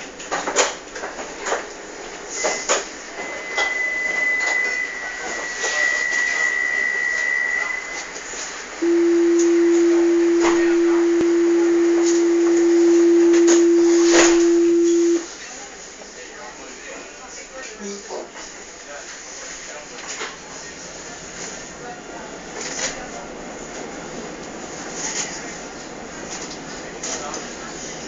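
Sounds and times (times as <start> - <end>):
high warning tone: 8.8 - 15.3
low warning tone: 8.8 - 15.3.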